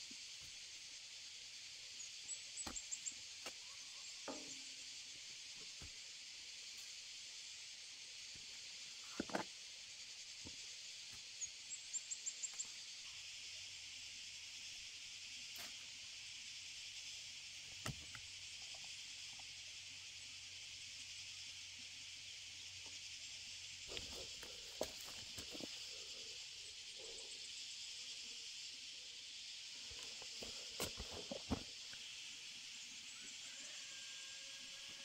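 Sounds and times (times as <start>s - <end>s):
high-pitched insect chorus: 0.0s - 35.0s
hoe knocking in soil: 30.4s - 31.7s.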